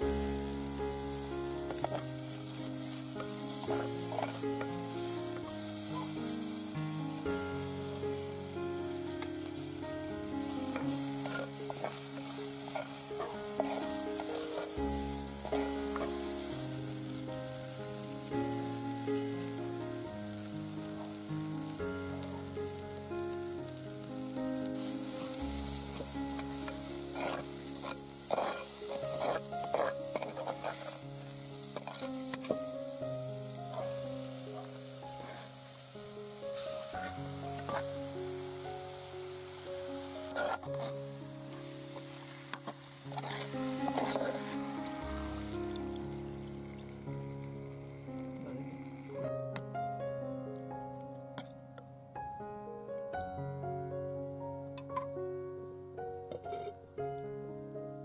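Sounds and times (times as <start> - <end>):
vegetables sizzling in oil: 0.0 - 50.0
soft instrumental music: 0.0 - 58.0
spoon scraping pot: 10.8 - 14.8, 26.4 - 31.0, 31.8 - 32.6, 40.3 - 41.0, 42.6 - 44.6.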